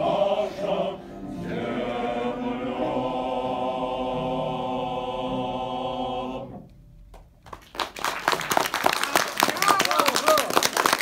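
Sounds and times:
male choir singing chord: 0.0 - 6.6
applause: 7.1 - 11.0.

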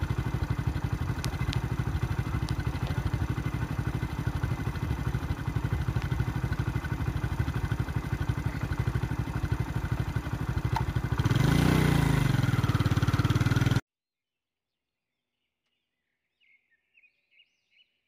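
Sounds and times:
vehicle engine idling: 0.0 - 13.8.

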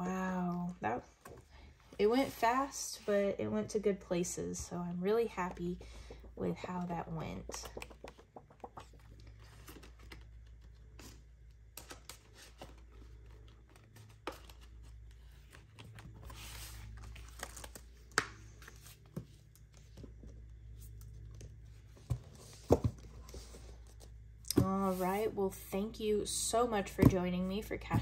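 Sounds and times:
low steady hum: 0.0 - 28.0
paper rustle: 5.8 - 11.2.

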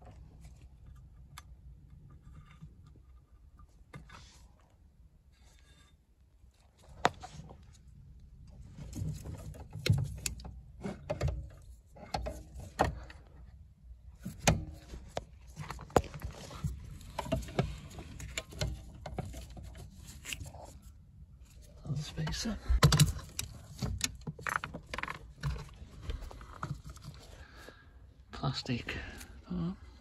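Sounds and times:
rustling: 14.0 - 27.9
metal parts clicking and knocking: 22.3 - 25.8.

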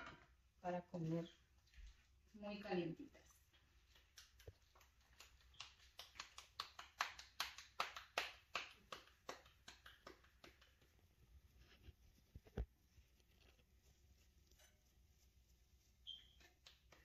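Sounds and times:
hands slapping dough: 3.5 - 11.4, 16.0 - 17.0.

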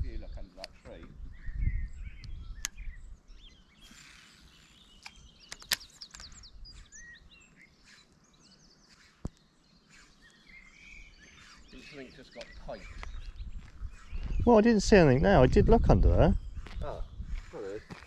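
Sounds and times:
small birds chirping: 0.0 - 18.0
sharp clicks: 2.2 - 2.8, 3.9 - 6.4, 12.4 - 12.6.

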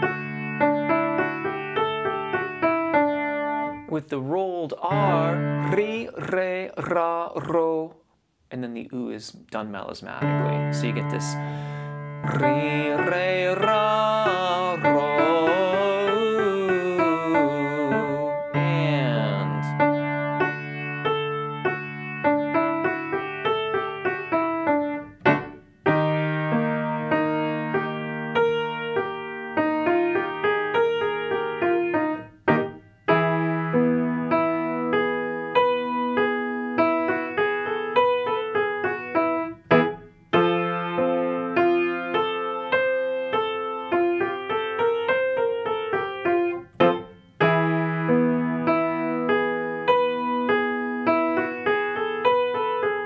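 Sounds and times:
piano playing vocal exercise: 3.5 - 7.9, 10.2 - 20.7.

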